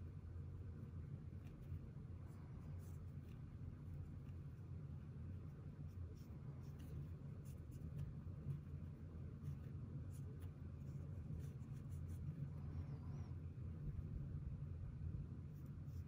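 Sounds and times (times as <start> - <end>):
steady low hum: 0.0 - 16.0
brush pen scratching on paper: 1.3 - 12.7.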